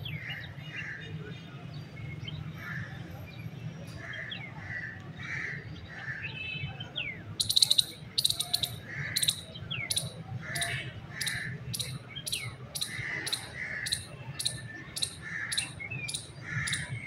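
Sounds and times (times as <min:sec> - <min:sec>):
bird chirping: 0:07.0 - 0:17.0.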